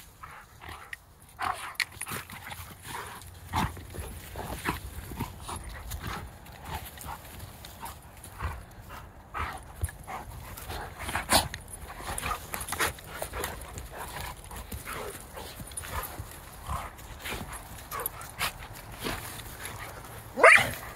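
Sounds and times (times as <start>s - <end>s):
dogs scuffling and pawing: 0.0s - 20.9s.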